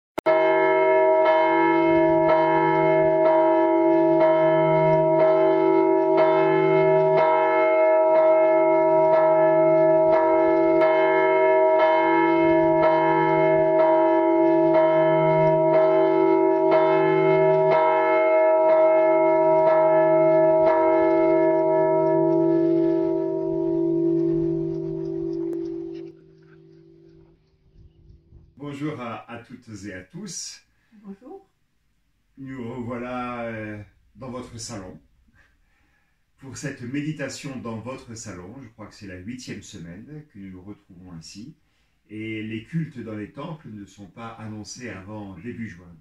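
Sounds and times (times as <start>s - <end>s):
church bells ringing: 0.3s - 27.3s.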